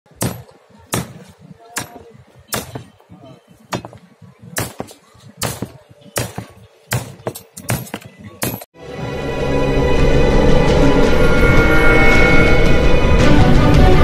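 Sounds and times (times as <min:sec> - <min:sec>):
hammer striking wooden planks: 0:00.1 - 0:03.0, 0:03.6 - 0:08.7.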